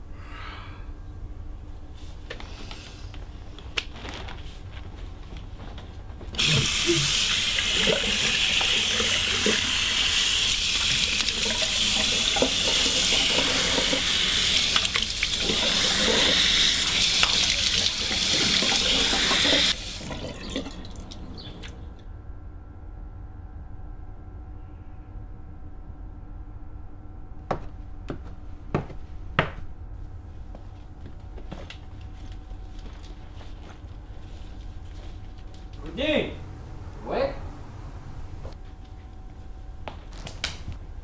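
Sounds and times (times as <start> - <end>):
tap running water into sink: 6.4 - 21.7.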